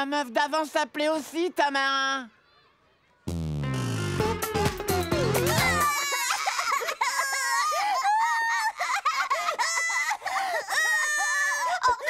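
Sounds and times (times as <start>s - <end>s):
cartoon girls crying and wailing: 5.1s - 12.0s.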